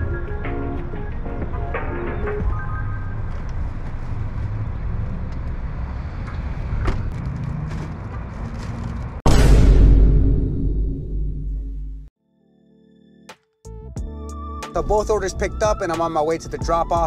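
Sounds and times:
traffic rumble: 0:00.0 - 0:09.2.

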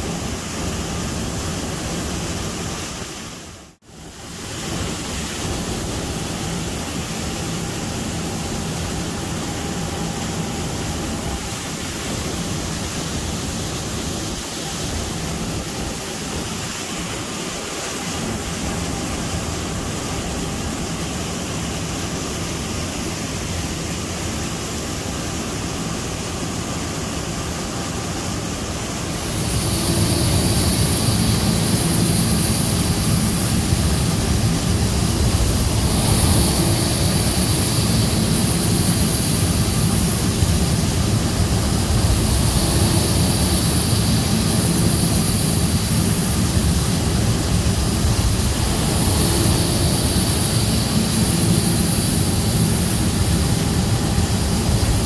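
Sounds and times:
faint high whine: 0:00.0 - 0:55.0
machinery roaring: 0:29.0 - 0:55.0.

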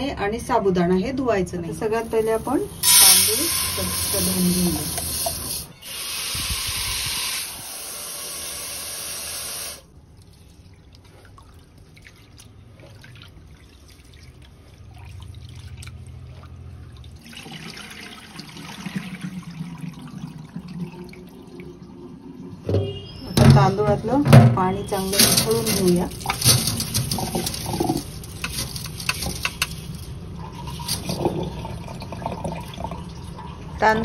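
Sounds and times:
tap water running into a pot: 0:02.0 - 0:09.9, 0:24.9 - 0:33.8
water splashing: 0:24.9 - 0:33.7
hands rubbing rice in water: 0:25.0 - 0:30.2.

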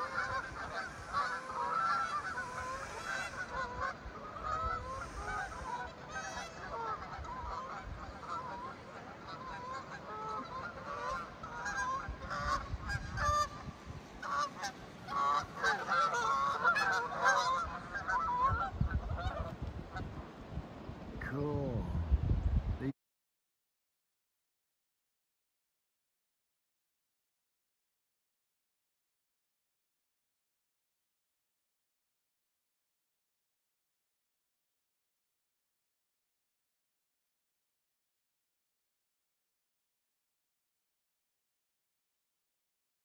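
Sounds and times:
geese honking: 0:00.0 - 0:20.1.

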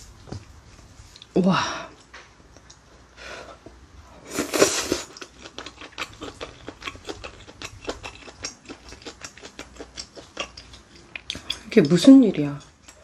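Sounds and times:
slurping noodles: 0:04.2 - 0:05.2
wet chewing with mouth clicks: 0:04.3 - 0:13.0.

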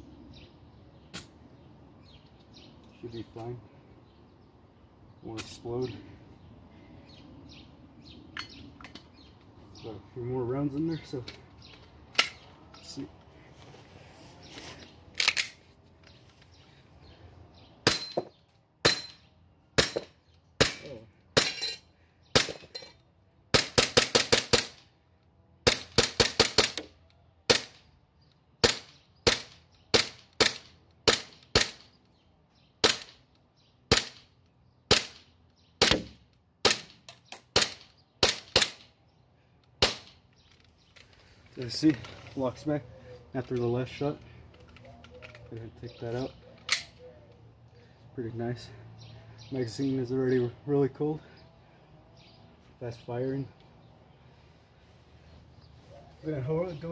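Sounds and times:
airsoft pistol shots: 0:28.6 - 0:31.9, 0:32.8 - 0:33.2, 0:33.9 - 0:34.2, 0:34.9 - 0:35.2, 0:35.8 - 0:38.8, 0:39.8 - 0:40.1.

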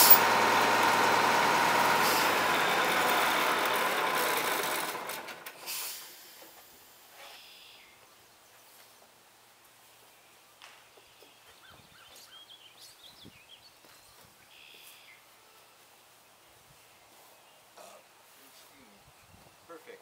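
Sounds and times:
faint bird chirps: 0:07.2 - 0:08.0, 0:10.0 - 0:15.3.

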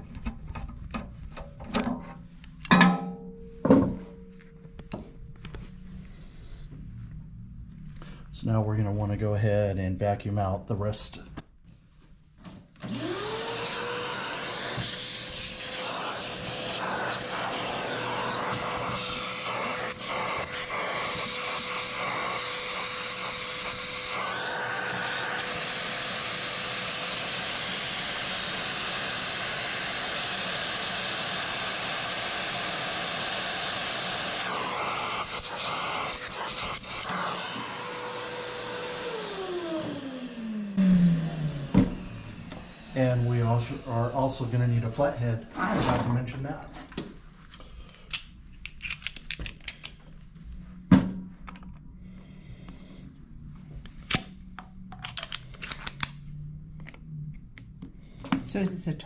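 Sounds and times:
vacuum motor winding down: 0:12.8 - 0:46.2
shop vacuum motor whine: 0:12.8 - 0:46.4.

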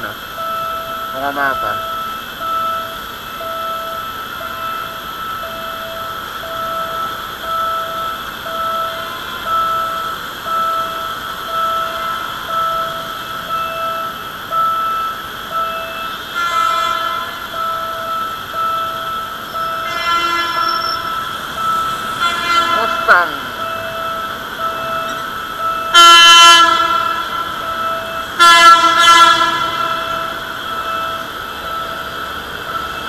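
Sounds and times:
electronic warning beeper: 0:00.0 - 0:33.0
idling traffic: 0:00.0 - 0:33.0
horn blast: 0:16.3 - 0:17.5, 0:19.8 - 0:23.8, 0:25.9 - 0:30.9.

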